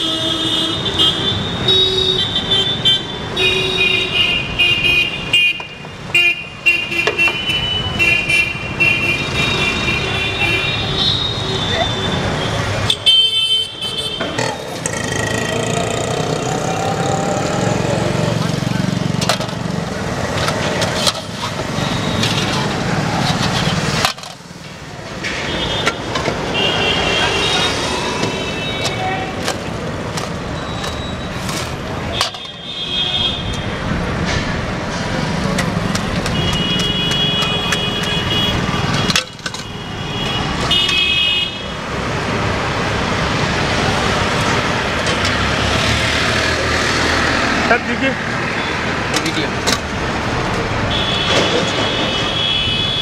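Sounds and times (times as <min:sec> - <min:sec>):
vehicle horns honking: 0:00.0 - 0:14.4, 0:25.3 - 0:29.4, 0:36.2 - 0:41.8, 0:50.9 - 0:53.0
street traffic noise: 0:00.0 - 0:53.0.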